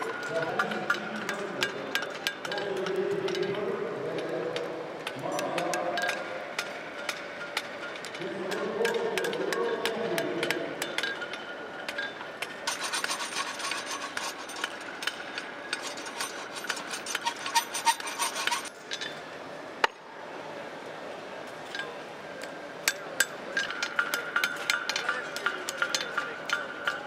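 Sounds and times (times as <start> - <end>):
metal rasping and scraping: 12.6 - 18.8.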